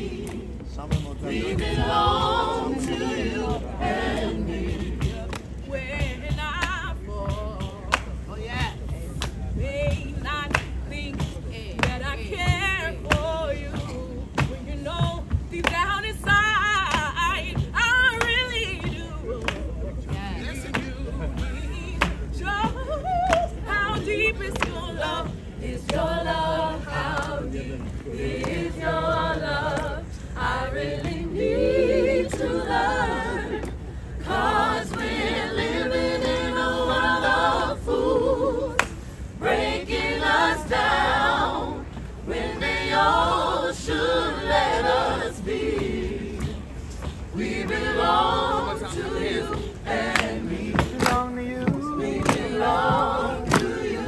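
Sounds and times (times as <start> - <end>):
choir singing a cappella: 0.0 - 7.9, 20.1 - 54.0
hand claps: 0.2 - 0.4, 4.1 - 5.6, 6.3 - 8.2, 9.1 - 14.6, 15.6 - 19.8, 20.6 - 30.0, 38.8 - 39.0, 49.5 - 54.0.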